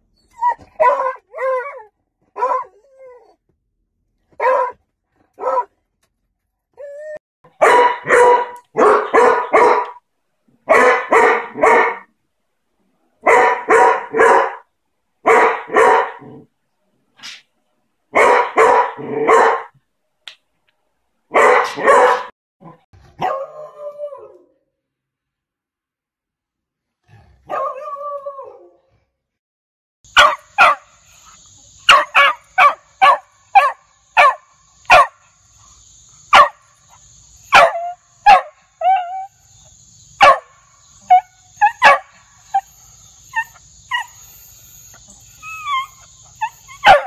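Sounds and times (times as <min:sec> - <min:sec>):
dog barking: 0:00.8 - 0:01.8, 0:02.4 - 0:02.7, 0:04.4 - 0:04.8, 0:05.4 - 0:05.7, 0:07.6 - 0:10.0, 0:10.7 - 0:12.1, 0:13.2 - 0:14.6, 0:15.2 - 0:16.4, 0:18.1 - 0:19.8, 0:21.3 - 0:22.3, 0:23.2 - 0:23.6, 0:27.5 - 0:28.0, 0:30.2 - 0:30.9, 0:31.9 - 0:35.2, 0:36.3 - 0:36.6, 0:37.5 - 0:39.3, 0:40.2 - 0:42.2, 0:46.8 - 0:47.0.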